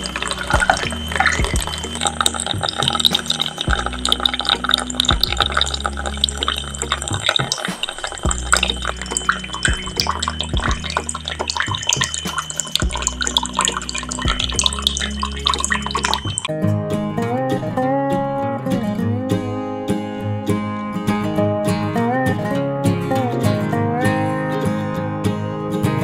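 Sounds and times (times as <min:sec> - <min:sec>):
water pouring into tub: 0:00.0 - 0:16.5.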